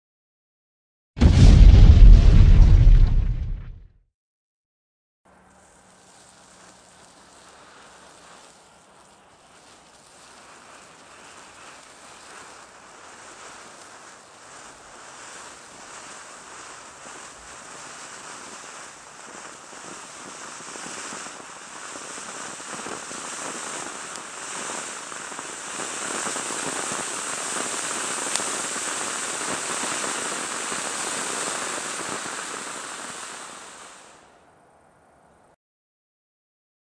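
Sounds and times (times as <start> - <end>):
firework fountain hissing and crackling: 5.3 - 34.4.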